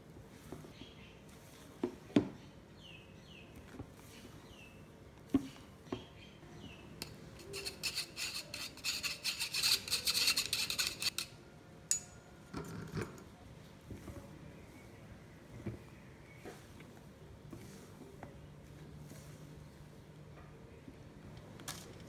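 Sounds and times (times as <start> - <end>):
spoon scraping a wire sieve: 7.0 - 11.4.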